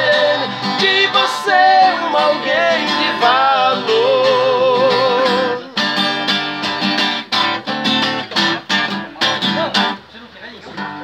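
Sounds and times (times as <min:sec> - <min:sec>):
men singing with vibrato: 0:00.0 - 0:06.0
acoustic guitar strumming: 0:00.0 - 0:11.0.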